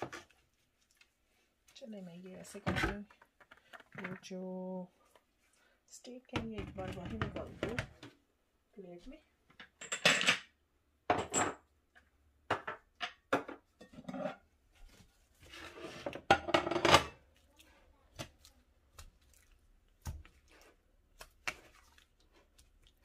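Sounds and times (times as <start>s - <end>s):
dishes knocking and clinking: 11.1s - 11.7s, 12.4s - 14.3s, 16.0s - 17.2s
wet meat handling: 17.2s - 23.0s.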